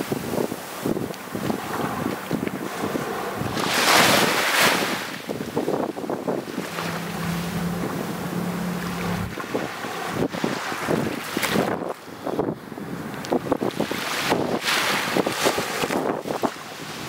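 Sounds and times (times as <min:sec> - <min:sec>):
small waves washing on sand: 0:00.0 - 0:17.0
wind buffeting microphone: 0:00.0 - 0:17.0
low steady hum: 0:06.0 - 0:10.3.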